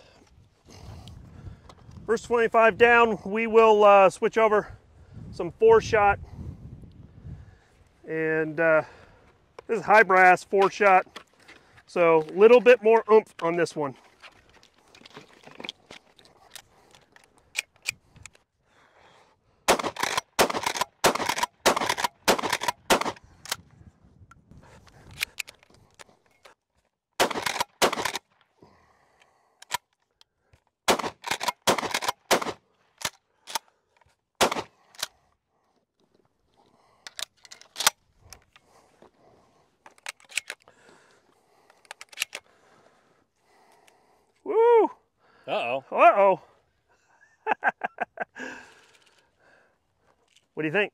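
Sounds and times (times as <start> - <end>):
shotgun shells clicking into magazine: 37.0 - 38.6, 39.9 - 40.7, 41.7 - 42.5.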